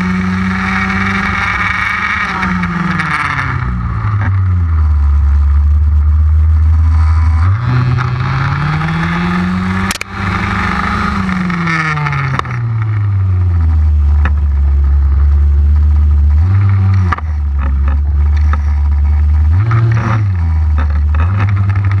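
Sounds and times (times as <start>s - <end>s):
two-stroke engine revving: 7.0s - 13.0s.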